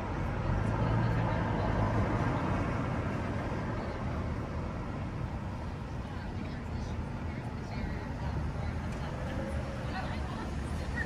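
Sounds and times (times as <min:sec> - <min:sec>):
car passing: 0:00.0 - 0:06.9.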